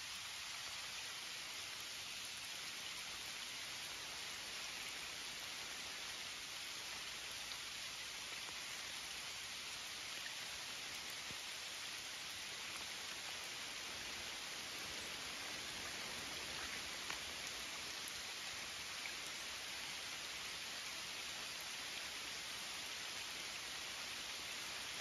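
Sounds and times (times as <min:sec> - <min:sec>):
rain on leaves and water: 0:00.0 - 0:25.0.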